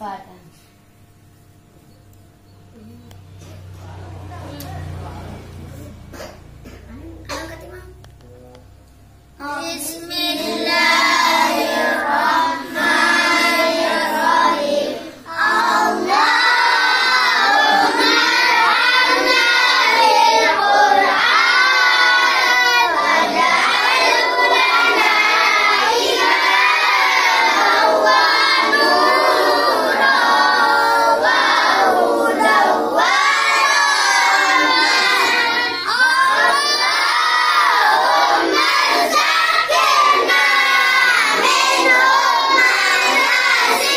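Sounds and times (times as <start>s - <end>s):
children chanting together: 9.4s - 43.9s.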